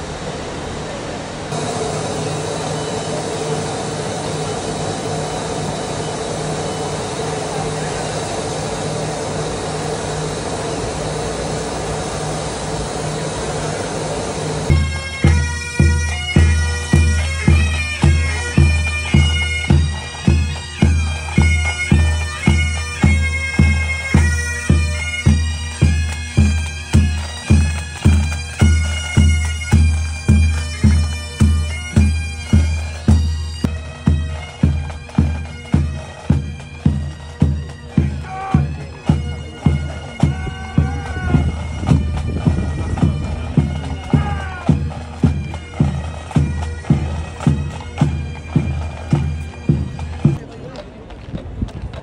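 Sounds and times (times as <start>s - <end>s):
bagpipes playing a march: 1.5s - 50.4s
steady drum beat: 14.7s - 50.4s.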